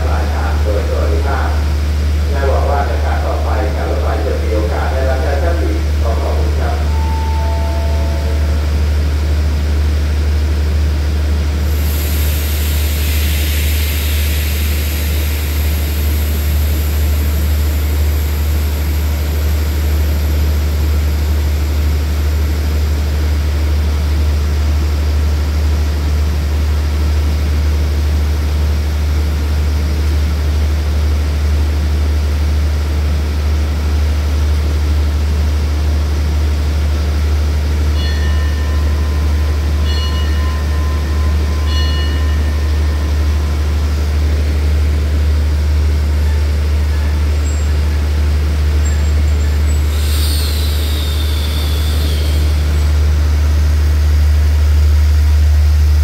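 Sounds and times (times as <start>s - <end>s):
diesel train engines idling: 0.0s - 56.0s
short high pitched tones: 6.8s - 8.6s
brake air hiss: 11.7s - 17.3s, 49.7s - 52.8s.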